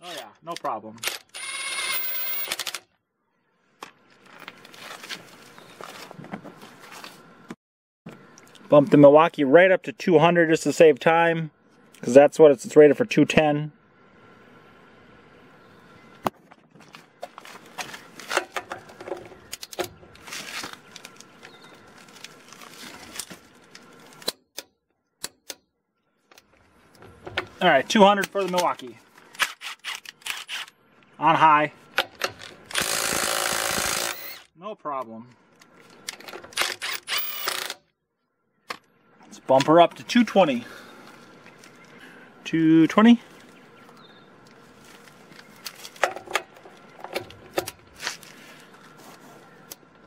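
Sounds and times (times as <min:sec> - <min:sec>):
faint footsteps: 0:04.0 - 0:07.6, 0:40.9 - 0:42.0, 0:43.2 - 0:46.0
rustling: 0:20.1 - 0:24.2.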